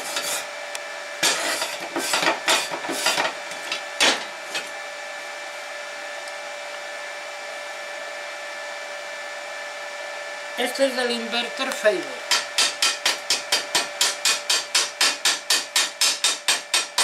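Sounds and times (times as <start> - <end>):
wire brush scrubbing steel: 0.0 - 0.5, 1.2 - 3.2
steady hum: 0.0 - 17.0.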